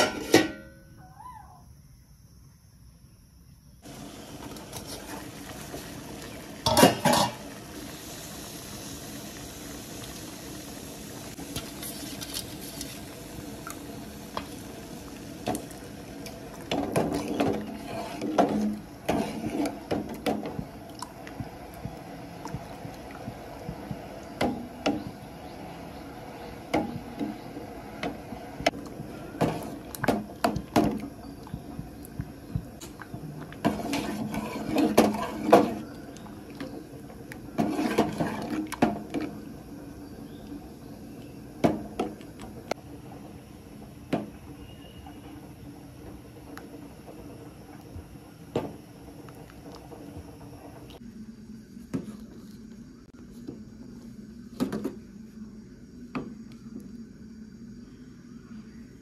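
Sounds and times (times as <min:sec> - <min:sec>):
ladle scraping a steel pot: 0:00.0 - 0:00.6, 0:06.6 - 0:07.4, 0:11.5 - 0:13.1, 0:16.7 - 0:20.6, 0:33.6 - 0:36.0, 0:37.6 - 0:39.3
metal clank: 0:00.0 - 0:00.8
water boiling in a pot: 0:03.8 - 0:53.1
slurry being poured: 0:03.9 - 0:24.5.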